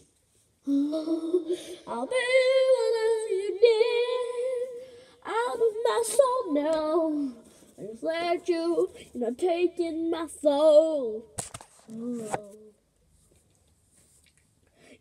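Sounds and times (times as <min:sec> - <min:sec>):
girl singing into microphone: 0:00.7 - 0:11.4, 0:12.0 - 0:12.8.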